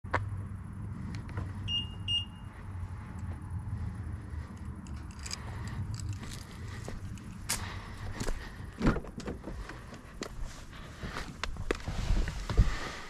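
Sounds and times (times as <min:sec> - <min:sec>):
low engine rumble: 0:00.1 - 0:13.0
short electronic beeps: 0:01.7 - 0:02.5.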